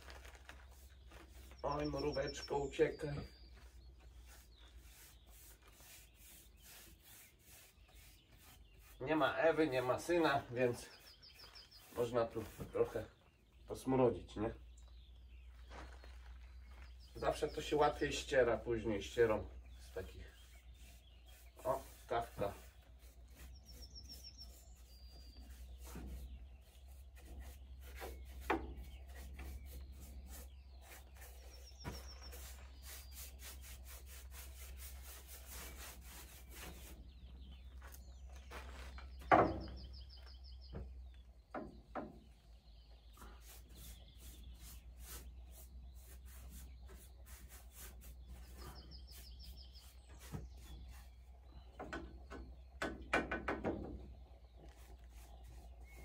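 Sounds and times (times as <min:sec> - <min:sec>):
paintbrush scraping on wood: 0:00.0 - 0:13.2, 0:15.6 - 0:40.9, 0:43.1 - 0:51.2, 0:54.5 - 0:56.0
knock: 0:52.8 - 0:54.0.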